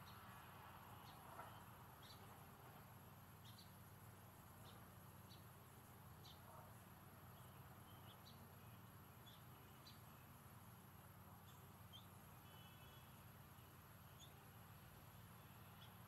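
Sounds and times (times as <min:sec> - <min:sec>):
faint bird chirps: 0:00.9 - 0:02.5, 0:03.4 - 0:03.8, 0:06.2 - 0:10.5, 0:11.3 - 0:16.0
bird trill: 0:11.4 - 0:13.2, 0:14.0 - 0:14.4, 0:15.5 - 0:16.0.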